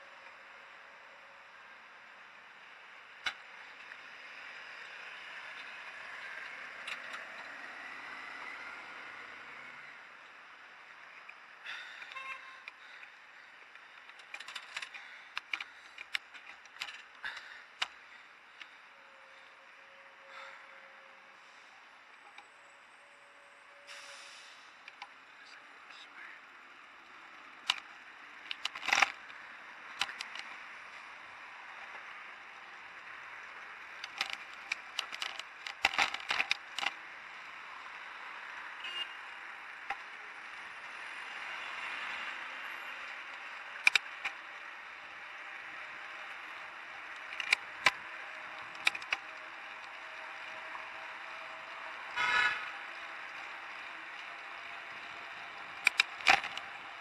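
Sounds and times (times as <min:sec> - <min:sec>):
street and wind noise: 0:00.0 - 0:57.0
bike and camera mount rattling: 0:14.0 - 0:18.0, 0:27.7 - 0:30.6, 0:34.0 - 0:37.0, 0:43.8 - 0:44.4, 0:47.2 - 0:48.0, 0:48.6 - 0:49.9, 0:55.8 - 0:56.7.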